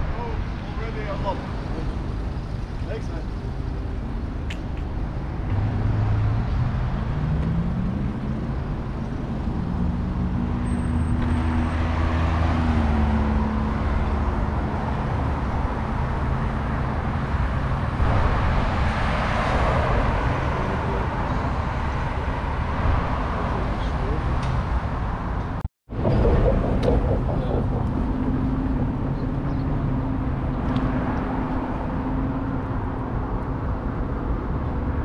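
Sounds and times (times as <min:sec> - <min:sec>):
passing vehicles: 0:00.0 - 0:35.0
vehicle engines running: 0:00.0 - 0:35.0
vehicle pulling away: 0:05.1 - 0:24.4.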